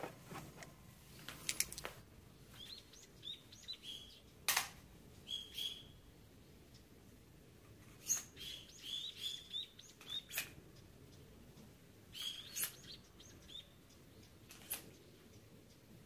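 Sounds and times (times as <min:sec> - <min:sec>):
sharp clicks: 0:01.3 - 0:02.0, 0:04.3 - 0:04.8
small bird chirping: 0:02.4 - 0:04.4, 0:05.2 - 0:07.0, 0:07.9 - 0:15.9.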